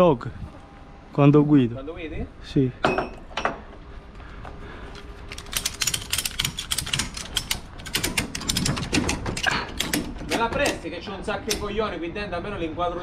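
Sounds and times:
metallic ratchet strap clicks: 5.3 - 8.7.

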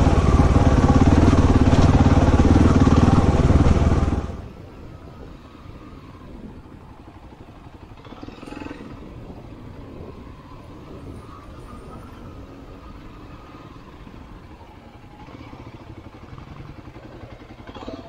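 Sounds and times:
dirt bike engine running: 0.0 - 4.5.

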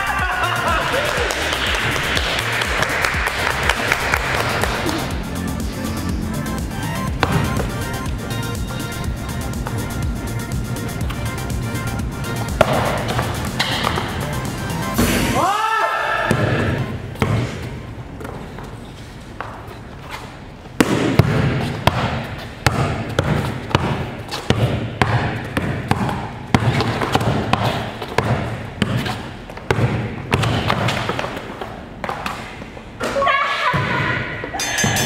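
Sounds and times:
basketball bouncing on court: 7.0 - 11.2, 12.4 - 14.2, 16.3 - 18.4, 20.8 - 32.4
ringing tones: 34.6 - 35.0.

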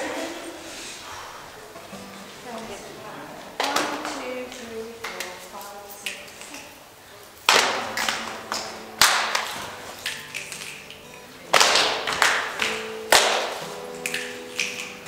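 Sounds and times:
group clapping a rhythm: 3.5 - 6.7, 7.4 - 15.0.

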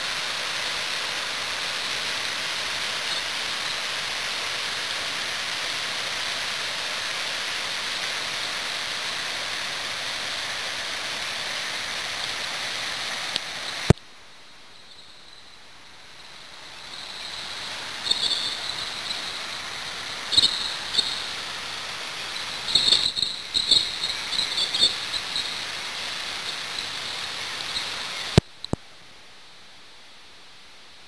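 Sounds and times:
river water rushing: 0.0 - 13.9, 15.0 - 28.4
high chirping: 16.7 - 21.5, 22.4 - 28.4.

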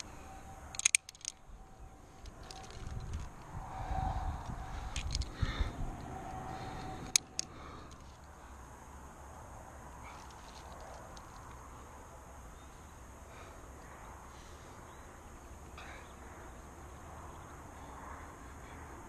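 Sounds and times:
wind rumble on microphone: 1.3 - 7.5.

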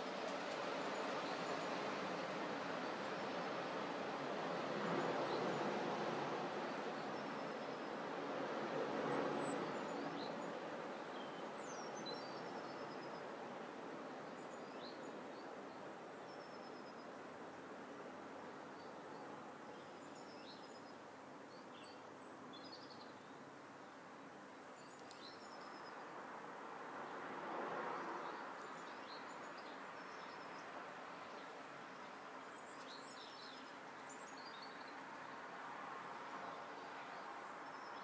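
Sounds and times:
small birds chirping: 24.8 - 26.0, 28.2 - 35.4.

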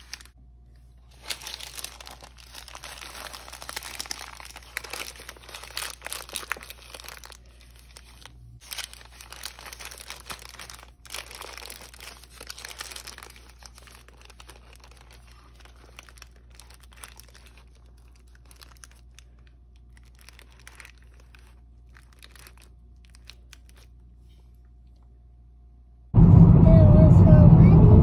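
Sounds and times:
paper wrappers crinkling: 0.0 - 25.0
loud car road noise: 26.2 - 28.0.

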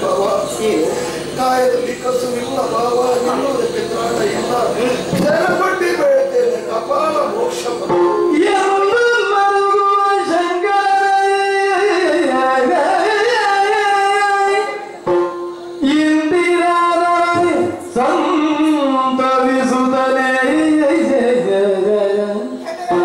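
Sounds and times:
person singing long held notes: 7.9 - 23.0.

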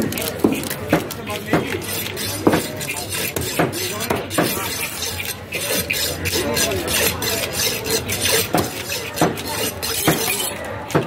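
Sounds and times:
knife chopping fish: 0.0 - 11.0
knife knocking on wood: 0.4 - 1.8, 2.4 - 4.6, 8.4 - 11.0.

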